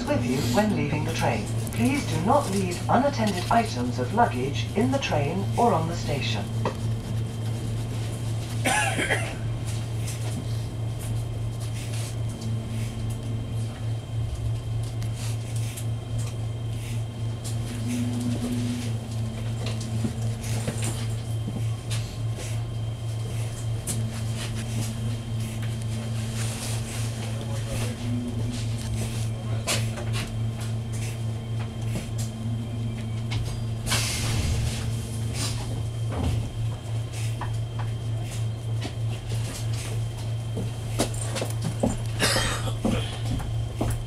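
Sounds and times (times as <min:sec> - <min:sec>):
faint high hum: 0:00.0 - 0:44.0
train carriage hum and rumble: 0:00.0 - 0:44.0.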